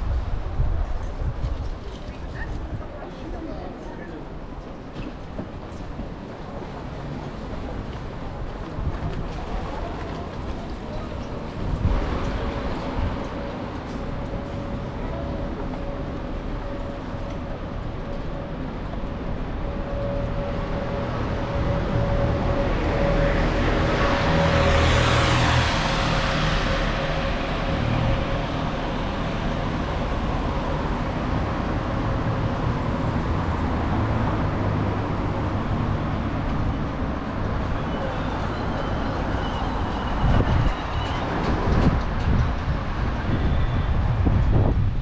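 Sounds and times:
low rumble of traffic engines: 0:00.0 - 0:45.0.

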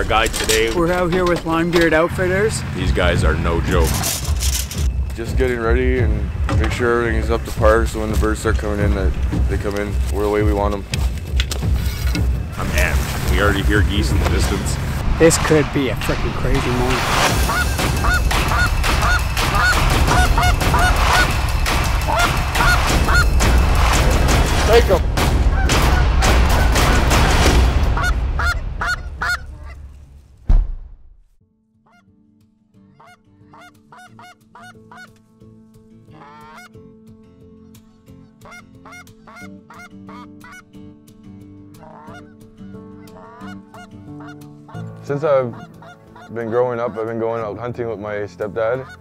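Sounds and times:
low rumble: 0:00.0 - 0:31.3
geese honking: 0:17.1 - 0:24.0, 0:27.8 - 0:30.0, 0:32.8 - 0:35.3, 0:36.0 - 0:36.8, 0:38.2 - 0:40.8, 0:41.7 - 0:47.6, 0:48.4 - 0:49.0.

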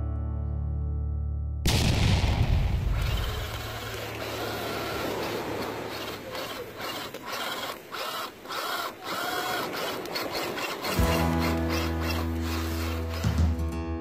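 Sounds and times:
electric motor and gears whining: 0:02.9 - 0:13.6
tyres churning through sand: 0:02.9 - 0:13.7
guitar music: 0:10.9 - 0:14.0.

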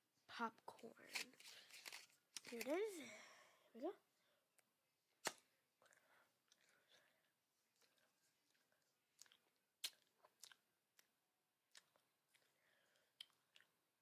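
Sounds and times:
chewing with mouth clicks: 0:07.7 - 0:13.8.

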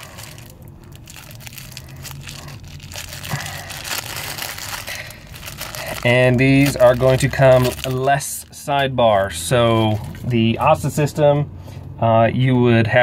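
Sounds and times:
plastic bag crinkling: 0:00.0 - 0:08.8, 0:09.7 - 0:10.4.

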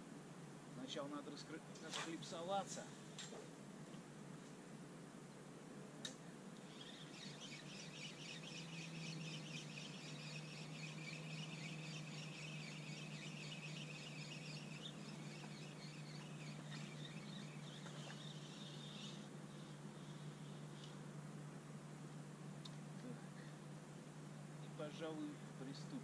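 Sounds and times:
songbird chattering song: 0:06.6 - 0:21.1.

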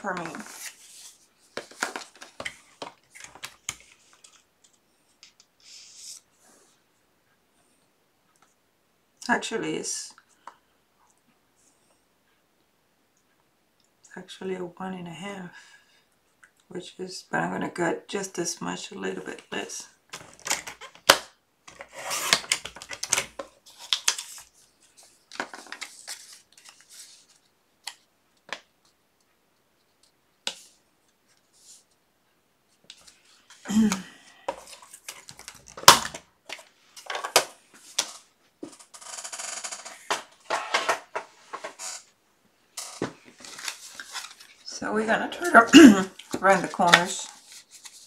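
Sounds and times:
paper rustling: 0:00.0 - 0:04.5, 0:21.7 - 0:28.0, 0:42.8 - 0:44.7, 0:45.5 - 0:48.0.

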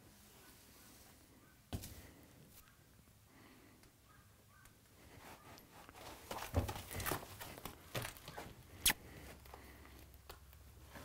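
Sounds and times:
hooves thudding on trailer floor: 0:06.0 - 0:08.6.

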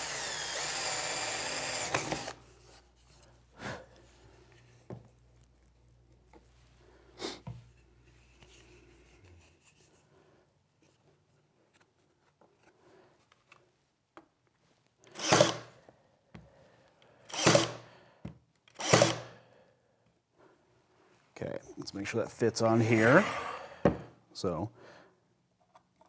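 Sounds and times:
nail gun firing: 0:15.2 - 0:15.7, 0:17.4 - 0:17.8, 0:18.8 - 0:19.3.

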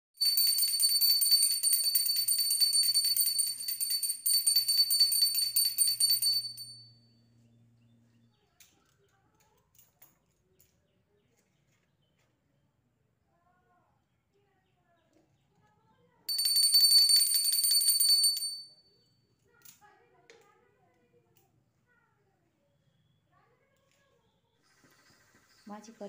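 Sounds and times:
hand bell ringing rapidly: 0:00.2 - 0:06.9, 0:16.3 - 0:18.8.

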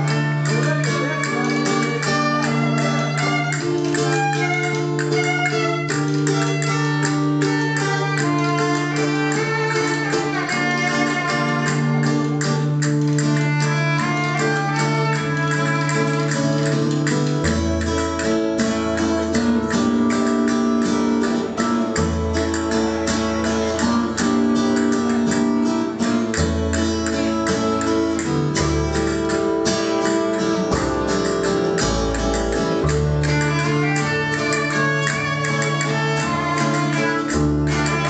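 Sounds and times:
violin playing: 0:00.0 - 0:16.7, 0:32.9 - 0:38.0
strummed guitar: 0:00.0 - 0:38.0
upright double bass: 0:00.0 - 0:38.0.

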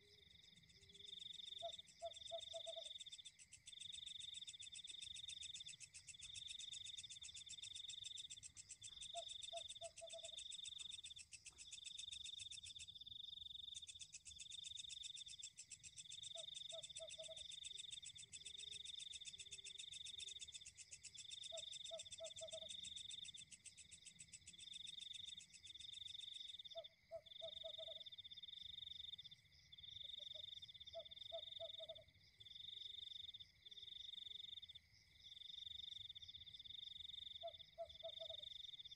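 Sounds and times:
insects pulsing trill: 0:00.0 - 0:38.9
frog calling: 0:01.5 - 0:03.3, 0:05.1 - 0:11.2, 0:16.3 - 0:18.4, 0:21.4 - 0:23.6, 0:26.7 - 0:28.1, 0:30.2 - 0:32.0, 0:37.4 - 0:38.4.

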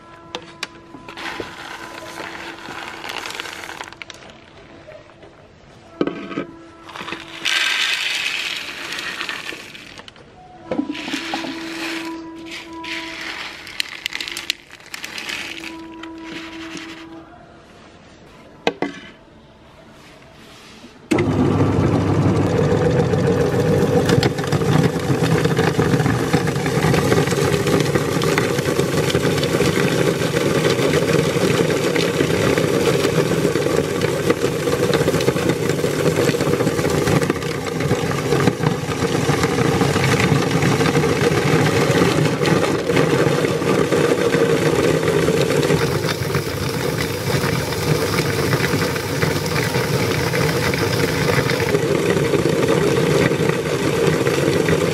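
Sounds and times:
meat grinder crunching candies: 0:01.1 - 0:04.4, 0:06.9 - 0:10.1, 0:10.9 - 0:16.6, 0:21.2 - 0:54.9.

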